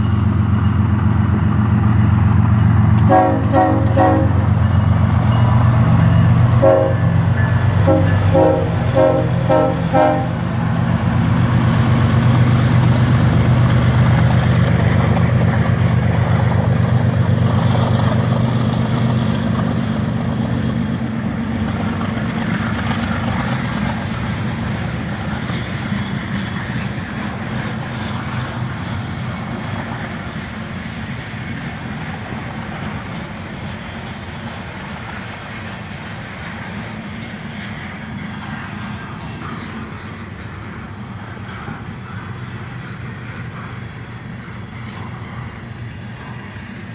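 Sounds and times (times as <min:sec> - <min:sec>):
diesel locomotive engine drone: 0:00.0 - 0:46.9
freight cars wheel-and-rail noise: 0:00.0 - 0:46.9.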